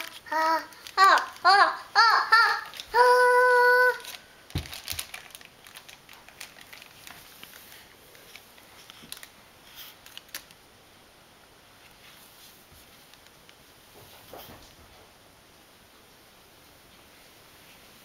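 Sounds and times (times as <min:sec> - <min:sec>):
toddler singing high note: 0:00.0 - 0:04.0
light crinkling: 0:00.0 - 0:10.6.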